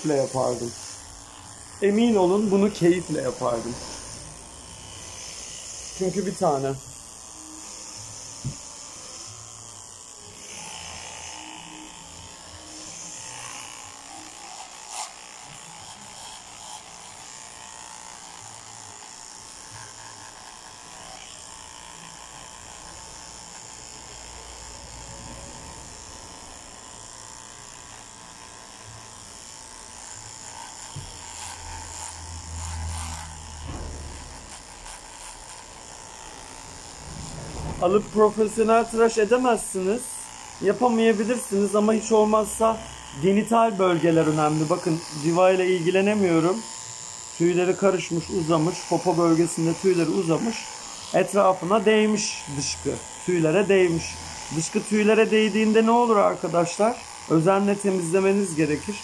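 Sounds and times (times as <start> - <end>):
electric clippers buzzing: 0.0 - 59.0
low rumbling: 36.5 - 39.0.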